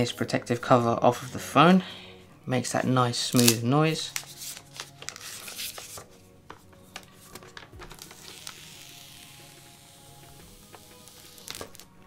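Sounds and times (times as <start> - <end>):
plastic film peeling: 3.3 - 12.0.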